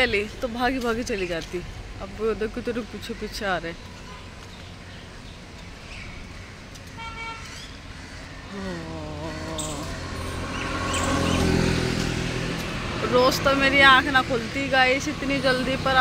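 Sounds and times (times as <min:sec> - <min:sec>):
traffic rumble: 0:00.0 - 0:16.0
vehicle horn toot: 0:07.0 - 0:07.5
vehicle engine passing: 0:08.5 - 0:16.0.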